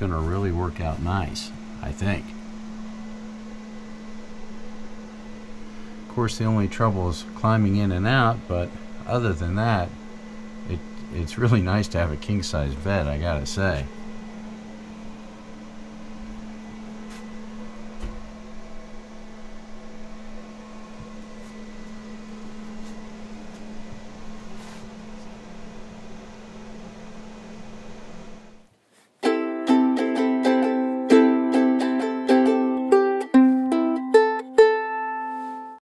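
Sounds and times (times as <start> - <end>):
low room hum with hiss: 0.0 - 35.8
plucked-string music: 29.2 - 35.8.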